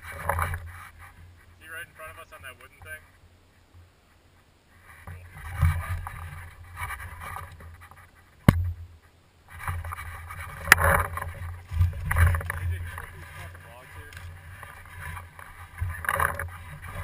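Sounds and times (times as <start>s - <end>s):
handling and rustling noise: 0.0s - 17.0s.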